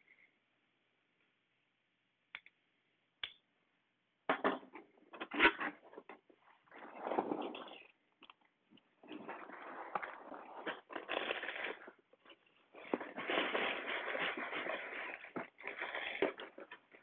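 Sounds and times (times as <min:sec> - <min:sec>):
cardboard box rustling and scraping: 0:06.6 - 0:07.8, 0:09.0 - 0:12.0, 0:12.8 - 0:16.8.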